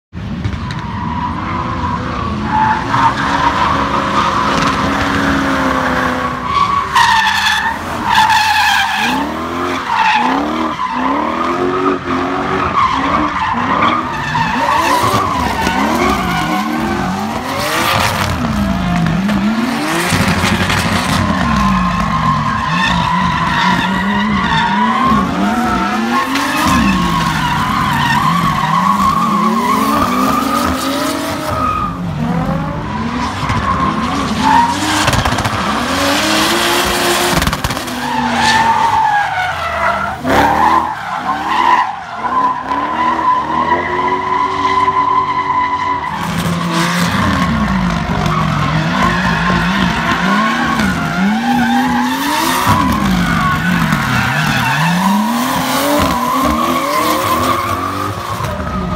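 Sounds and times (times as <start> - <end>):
car engines revving: 0.1 - 58.9
tyres squealing: 37.9 - 58.9.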